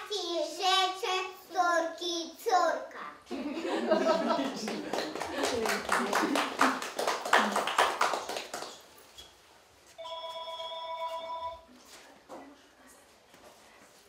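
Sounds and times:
audience clapping: 4.2 - 9.0.

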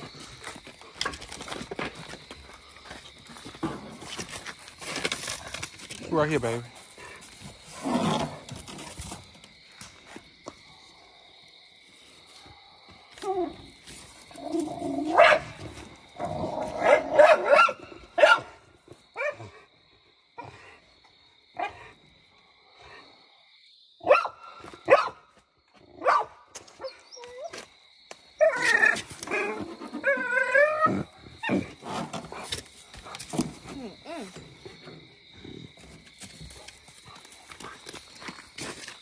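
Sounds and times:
dog barking and whining: 14.8 - 15.6, 16.4 - 18.6, 19.2 - 19.6, 24.0 - 25.2, 26.0 - 27.6, 28.4 - 31.7.

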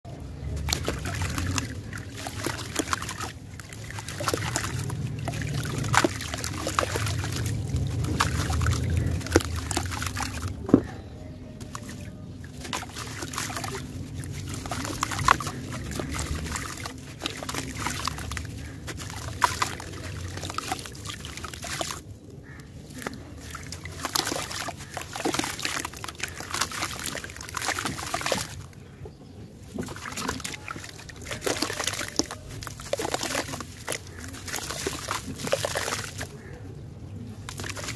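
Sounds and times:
water sloshing: 0.0 - 37.9
crumbs pattering into water: 0.4 - 10.9, 11.6 - 28.8, 29.7 - 36.5, 37.4 - 37.9
crunching crackle: 11.6 - 28.6, 29.7 - 36.6.

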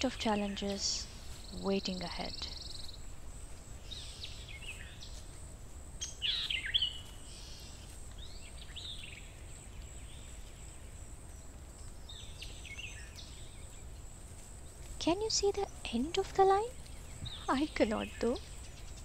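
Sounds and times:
birds chirping and whistling: 6.0 - 10.7, 11.8 - 13.8, 15.4 - 19.0.

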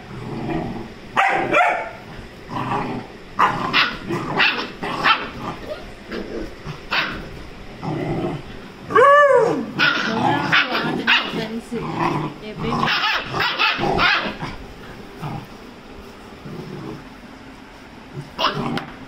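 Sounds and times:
puppies barking: 1.1 - 2.1, 3.4 - 7.4, 8.9 - 15.0, 18.3 - 18.9.

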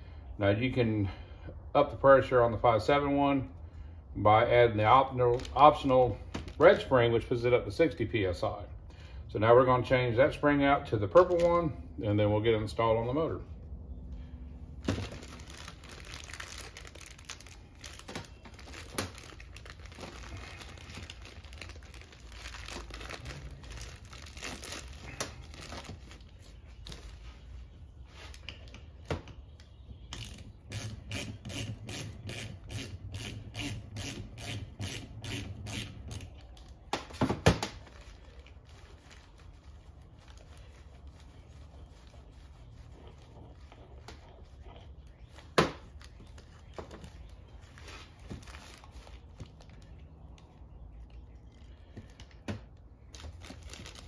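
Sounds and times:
plastic bag crinkling: 14.7 - 27.5, 37.7 - 43.7, 44.5 - 50.7, 51.4 - 54.0.

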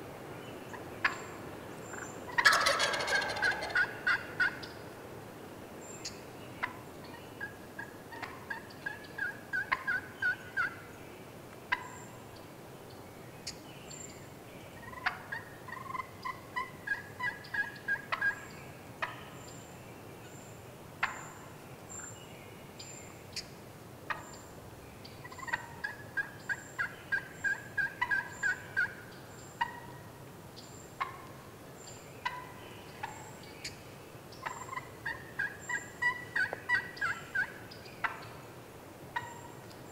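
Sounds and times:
wild turkey calling: 0.6 - 4.9, 6.0 - 11.0, 11.7 - 12.2, 14.8 - 19.3, 21.0 - 21.5, 24.1 - 24.5, 25.1 - 30.1, 31.0 - 31.4, 32.2 - 38.4, 39.1 - 39.8.

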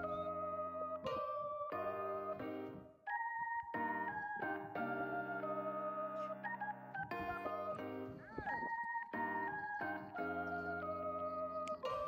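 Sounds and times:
keyboard melody over chords: 0.0 - 12.0.

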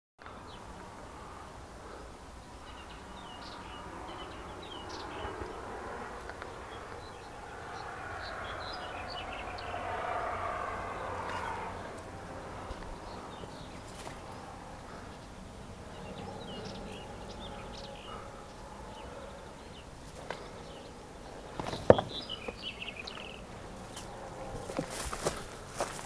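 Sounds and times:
small birds chirping: 0.2 - 26.0
steady background wash: 0.2 - 26.0
low rumble: 2.7 - 15.0.

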